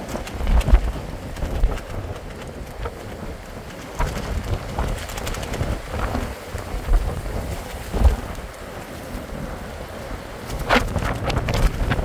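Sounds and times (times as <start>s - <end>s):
rain: 0.0s - 12.0s
wind buffeting microphone: 0.0s - 12.0s.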